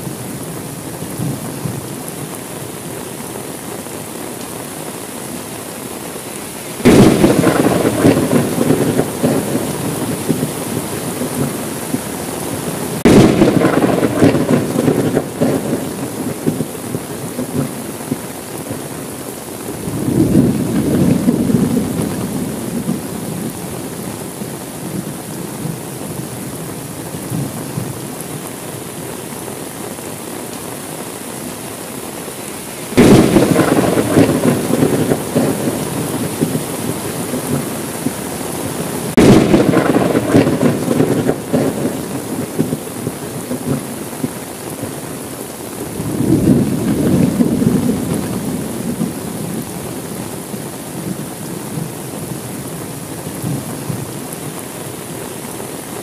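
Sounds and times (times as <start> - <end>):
steady rain: 0.0 - 56.0
thunder claps and rumbling: 6.8 - 18.9, 19.8 - 24.1, 33.0 - 45.0, 45.9 - 50.0.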